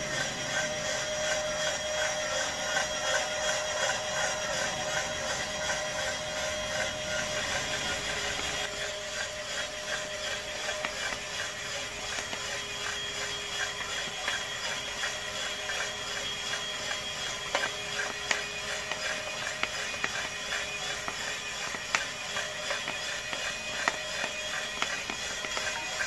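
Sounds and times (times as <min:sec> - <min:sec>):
coffee roaster humming: 0:00.0 - 0:26.0.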